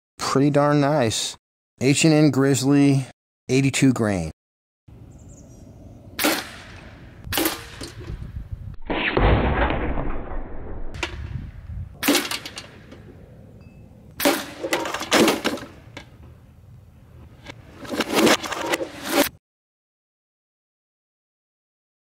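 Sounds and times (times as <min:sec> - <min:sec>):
air rifle shots cracking: 0:06.2 - 0:08.3, 0:12.0 - 0:13.2, 0:14.1 - 0:16.0.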